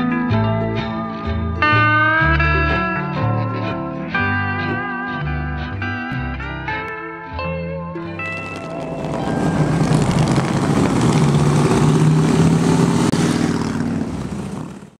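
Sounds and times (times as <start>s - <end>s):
motorcycles riding past: 8.2s - 15.0s.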